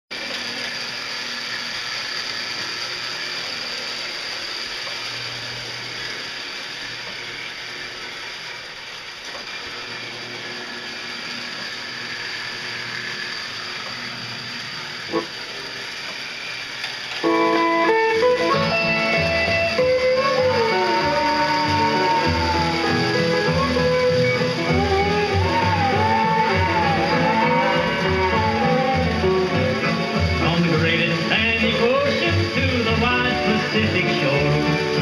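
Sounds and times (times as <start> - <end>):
toy train motor whirring: 0.1 - 35.0
wheels rattling on rails: 0.2 - 35.0.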